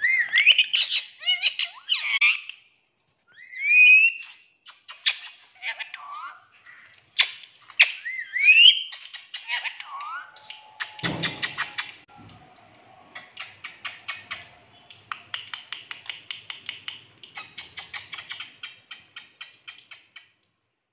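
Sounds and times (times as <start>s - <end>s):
bird chirp rising: 8.1s - 15.3s.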